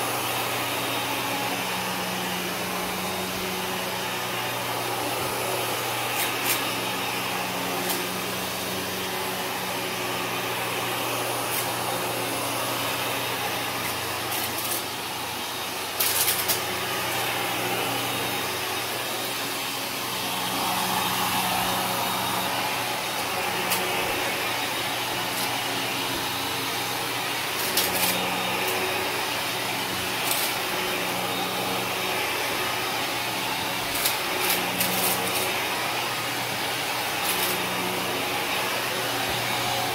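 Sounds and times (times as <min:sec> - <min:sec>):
vacuum cleaner droning: 0:00.0 - 0:39.9.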